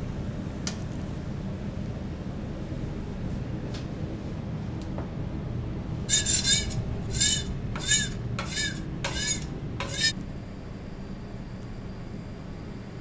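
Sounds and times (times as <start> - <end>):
steady low hum: 5.2 - 13.0
metal spatula scraping griddle: 6.1 - 10.2.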